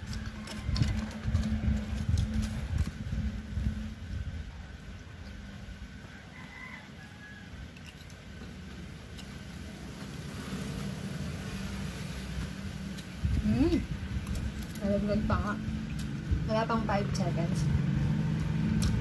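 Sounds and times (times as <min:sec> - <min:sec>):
steady low hum: 0:00.0 - 0:19.0
person chewing: 0:07.7 - 0:09.6, 0:15.8 - 0:16.2.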